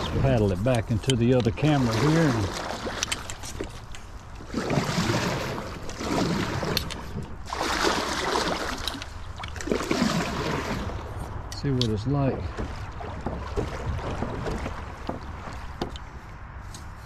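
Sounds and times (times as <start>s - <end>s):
water washing along hull: 0.0s - 16.2s
kayak paddle splashing: 0.0s - 16.3s.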